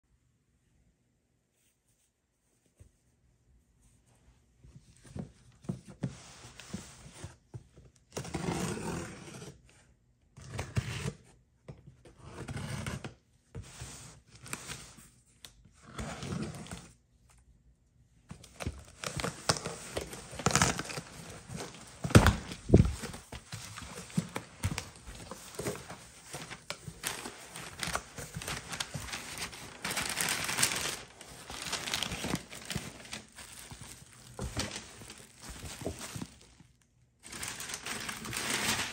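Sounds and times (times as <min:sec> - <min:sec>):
plastic and paper rustling: 0:18.3 - 0:38.9
packing tape tearing: 0:23.9 - 0:36.3.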